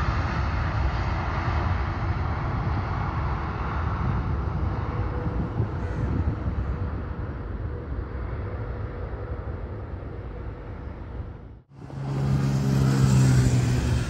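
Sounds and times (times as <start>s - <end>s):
motorcycle engine passing: 11.7s - 14.0s.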